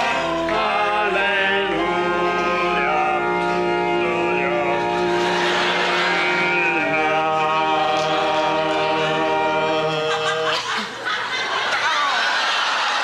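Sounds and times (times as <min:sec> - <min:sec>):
men singing long notes: 0:00.0 - 0:10.8
audience laughter: 0:05.0 - 0:06.7, 0:09.7 - 0:13.0.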